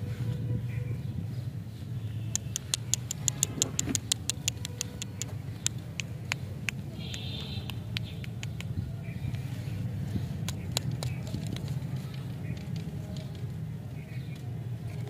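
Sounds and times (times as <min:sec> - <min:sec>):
sharp high ticks: 0:02.3 - 0:08.8, 0:10.4 - 0:11.7.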